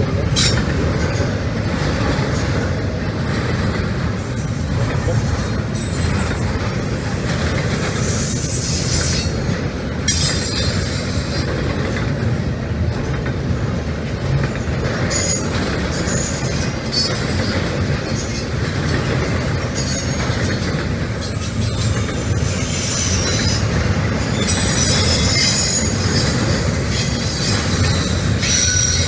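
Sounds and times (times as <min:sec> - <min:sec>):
train wheels rumbling on rails: 0:00.0 - 0:29.0
high-pitched wheel squeal: 0:08.0 - 0:09.4, 0:24.3 - 0:29.0.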